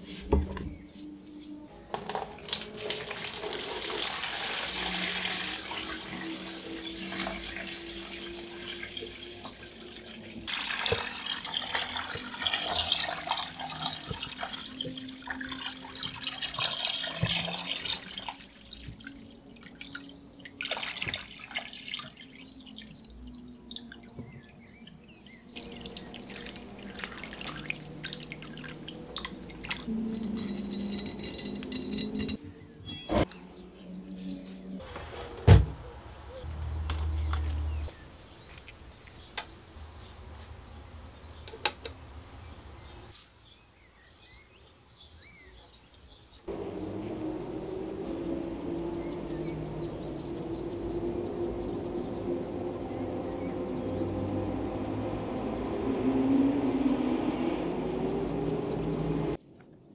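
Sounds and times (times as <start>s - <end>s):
water pouring into plastic tub: 2.0s - 24.6s, 25.6s - 29.9s.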